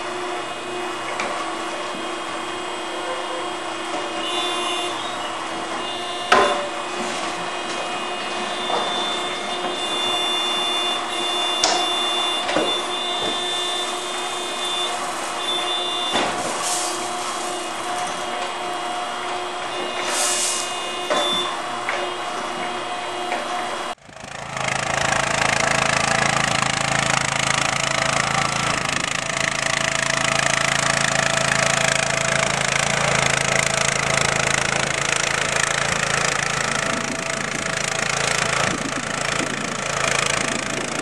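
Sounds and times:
excavator hydraulic whine: 0.0s - 41.0s
bucket knocking and scraping dirt: 11.6s - 18.6s.

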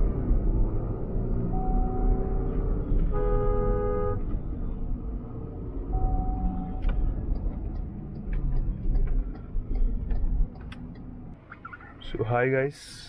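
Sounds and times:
engine and road rumble in cabin: 0.0s - 12.2s
single-tone horn toot: 1.5s - 2.5s, 3.1s - 4.2s
vehicle horn honking: 1.6s - 2.5s, 3.1s - 4.2s.

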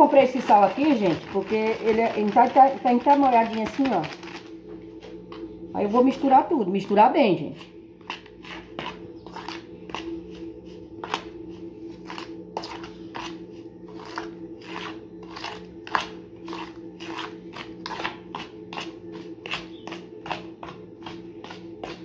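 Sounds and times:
spoon scraping in metal basin: 7.5s - 22.0s.

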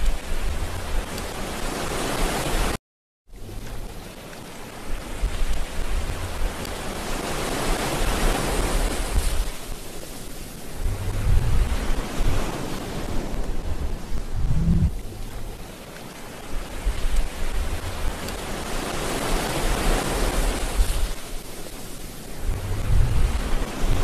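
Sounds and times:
wind buffeting microphone: 0.0s - 1.9s, 4.8s - 7.0s, 10.4s - 15.8s, 16.4s - 24.0s
rush of wind: 3.4s - 24.0s
surf: 3.4s - 24.0s.

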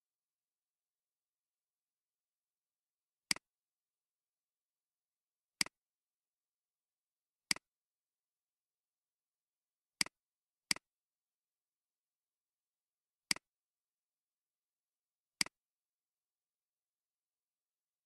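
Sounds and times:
computer mouse clicks: 15.4s - 15.6s.

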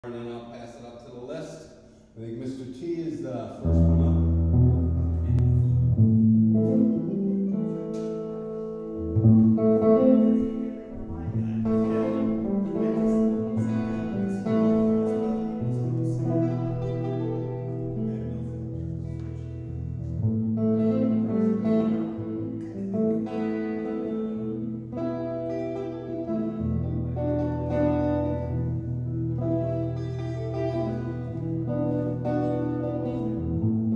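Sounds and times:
electric guitar through amplifier: 3.6s - 33.9s.

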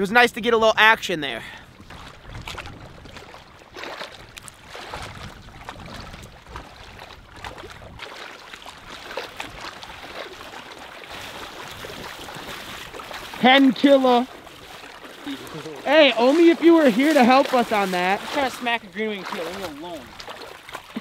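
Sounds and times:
legs sloshing through water: 1.5s - 21.0s
wind on microphone: 1.6s - 13.4s.

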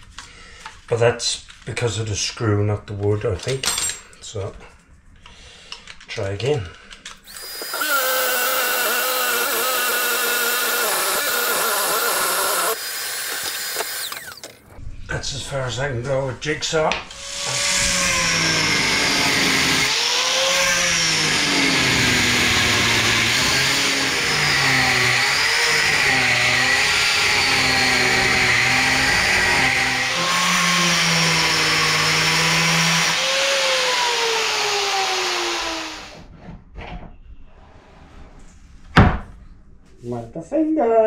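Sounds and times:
angle grinder cutting sheet: 7.3s - 14.6s, 17.1s - 36.3s.

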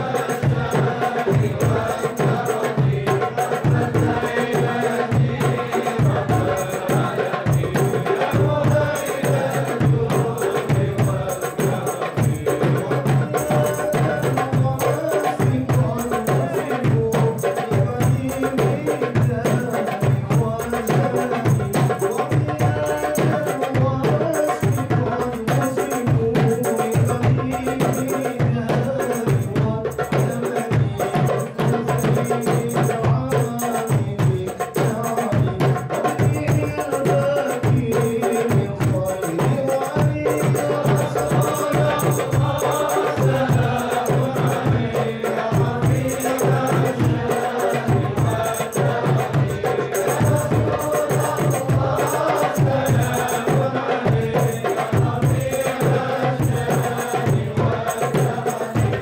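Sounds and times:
voices chanting: 0.0s - 17.0s, 36.2s - 59.0s
percussion beat: 0.0s - 59.0s.

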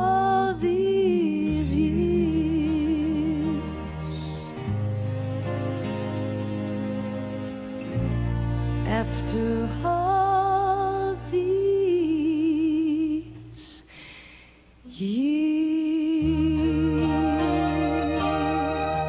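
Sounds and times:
woman singing a country ballad: 0.0s - 4.4s, 8.8s - 14.0s, 14.9s - 18.7s
woman taking a breath: 13.9s - 14.8s
soft band backing: 16.2s - 19.0s.

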